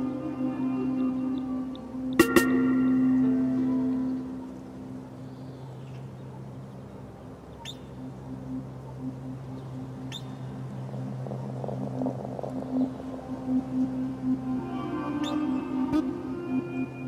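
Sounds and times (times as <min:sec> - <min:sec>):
low steady drone: 0:00.0 - 0:17.0
high bird chirps: 0:07.6 - 0:10.9.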